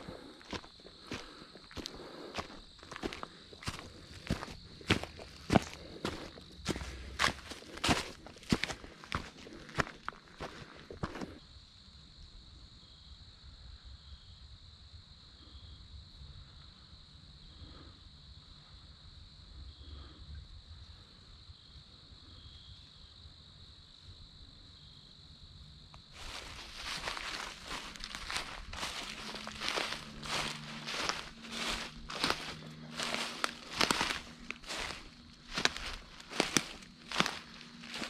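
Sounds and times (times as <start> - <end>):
footsteps on dry leaves: 0.0 - 11.4, 26.2 - 38.0
insects trilling: 0.0 - 38.0.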